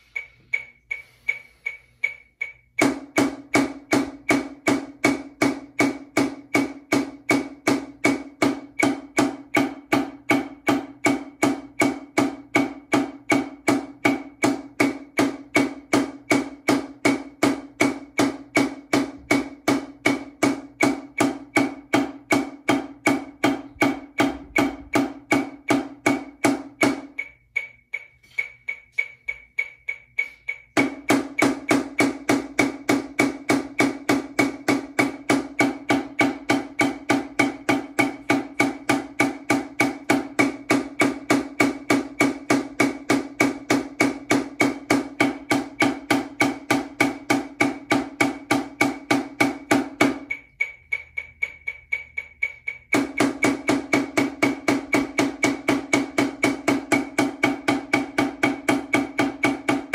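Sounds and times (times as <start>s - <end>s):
metronome click: 0.0s - 2.8s, 27.1s - 30.8s, 50.2s - 53.0s.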